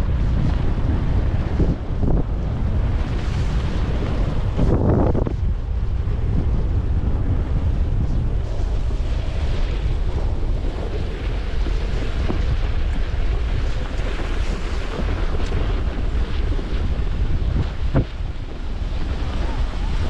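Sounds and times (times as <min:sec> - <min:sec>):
wind buffeting microphone: 0:00.0 - 0:20.0
skis sliding on snow: 0:02.9 - 0:04.8, 0:08.1 - 0:20.0.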